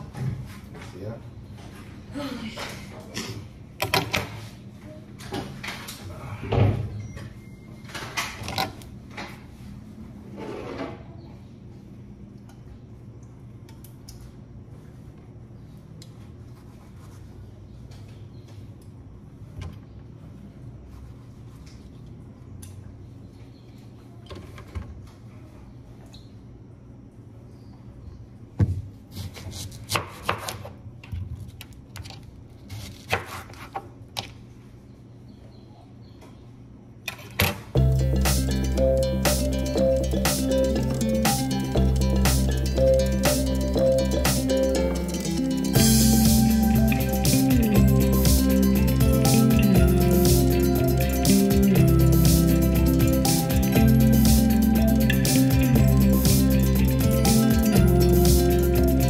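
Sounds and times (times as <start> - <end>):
low steady hum: 37.7 - 59.0.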